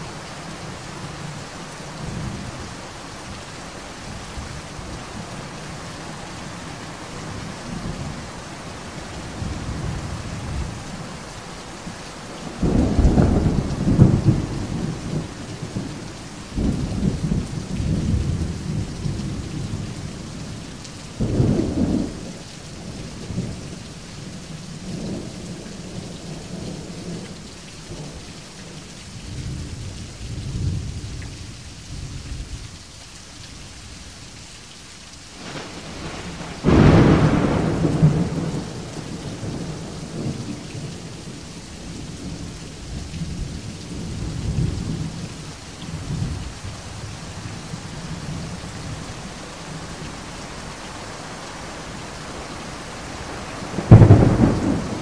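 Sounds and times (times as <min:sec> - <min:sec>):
steady rain: 0:00.0 - 0:55.0
thunder rumbling: 0:12.4 - 0:15.8, 0:35.4 - 0:42.5, 0:53.1 - 0:55.0.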